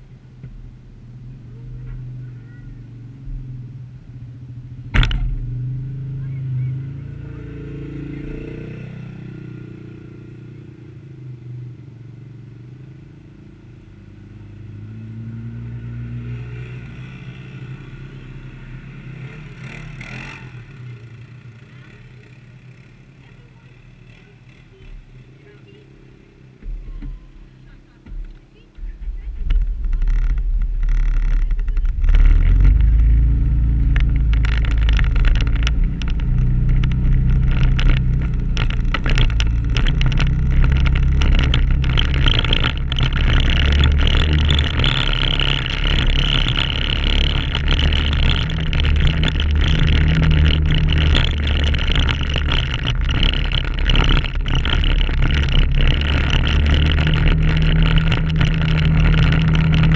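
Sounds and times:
atv engine revving: 1.2 - 59.9
knocks and rattles over bumps: 4.9 - 5.6, 24.2 - 59.9.

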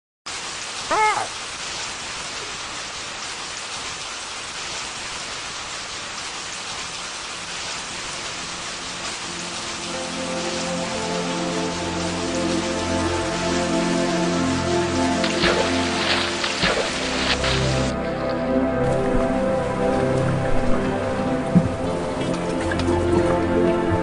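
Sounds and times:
rain hiss: 0.3 - 24.0
soft music with held notes: 9.2 - 24.0.

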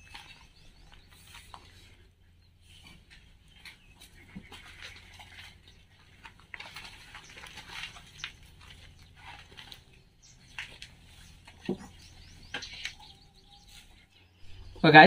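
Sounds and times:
footsteps on loose stones: 0.0 - 2.0, 2.7 - 14.8.

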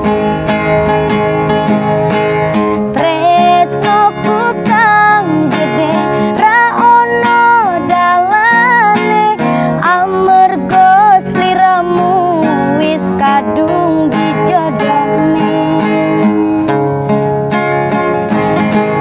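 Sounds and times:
strummed acoustic guitar: 0.0 - 19.0
woman singing: 2.8 - 16.8.

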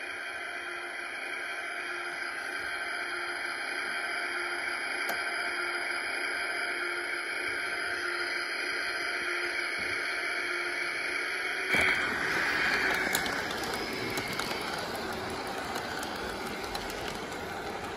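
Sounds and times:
steady humming drone: 0.0 - 17.9
model train wheels rumbling: 11.7 - 17.9.

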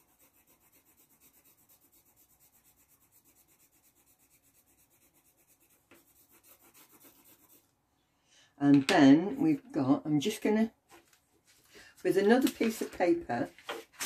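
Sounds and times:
pencil scratching on paper: 0.0 - 7.8.

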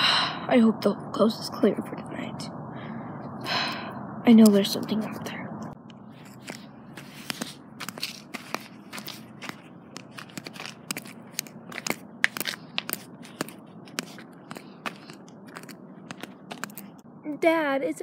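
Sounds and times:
toy walked over gravel and grass: 6.2 - 17.0.

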